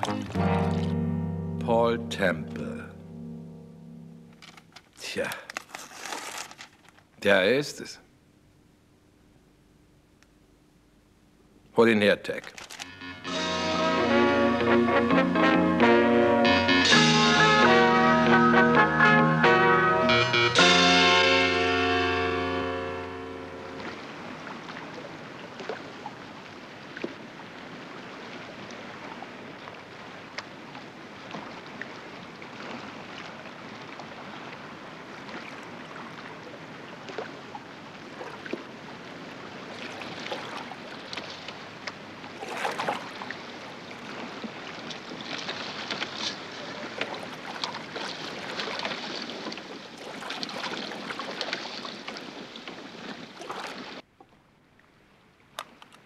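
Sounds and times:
wind: 0.0 - 56.0
water lapping around a boat: 23.5 - 56.0
oar knocks and splashes: 23.8 - 27.4, 37.0 - 38.8, 39.7 - 54.4.

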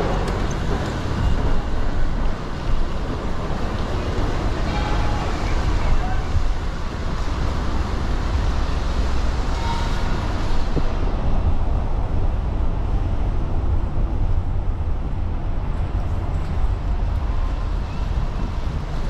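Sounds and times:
traffic noise: 0.0 - 19.0.

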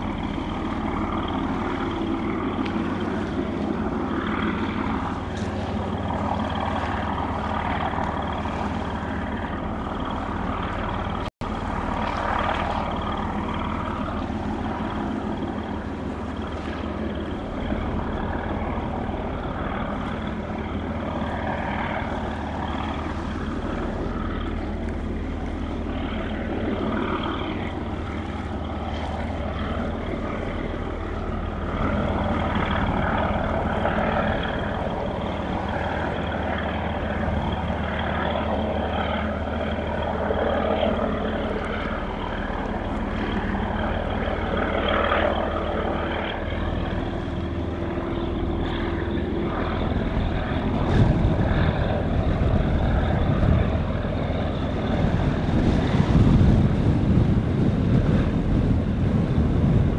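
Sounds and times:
low engine drone: 0.0 - 59.9
outdoor noise: 0.0 - 59.9.

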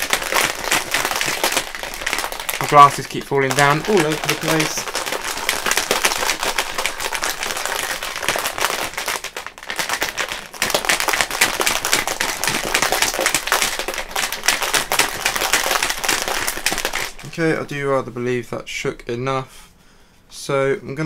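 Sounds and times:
shaker bottle rattling and sloshing: 0.0 - 17.4.

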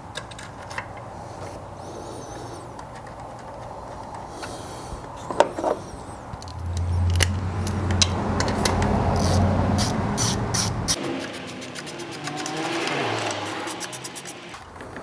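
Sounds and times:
metal tool clicks and clinks: 6.4 - 15.0.

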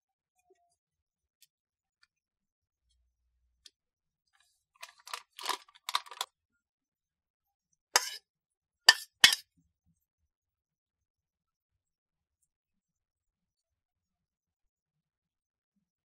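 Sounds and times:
plastic sachet crinkling: 4.8 - 6.3
ceramic plate clinking bowl: 8.0 - 8.2, 8.9 - 9.4.

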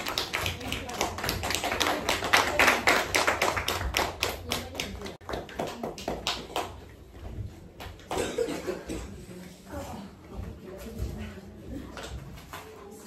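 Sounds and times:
children clapping: 0.0 - 6.9.

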